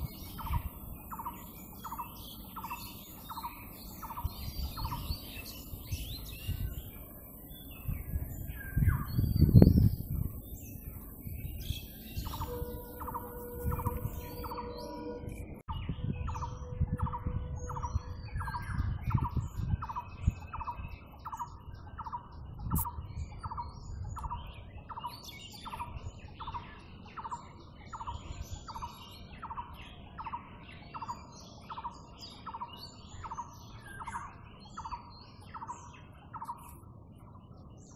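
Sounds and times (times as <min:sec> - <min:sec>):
birds chirping: 0:00.0 - 0:37.9
low rumbling noise: 0:04.7 - 0:19.7.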